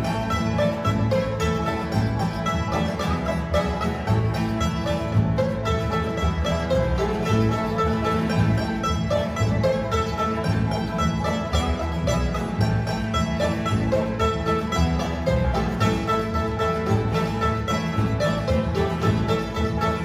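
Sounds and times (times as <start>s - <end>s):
acoustic guitars: 0.0s - 20.0s
banjo: 0.0s - 20.0s
mandolin: 0.0s - 20.0s
resonator guitar: 0.0s - 20.0s
upright bass: 0.0s - 20.0s.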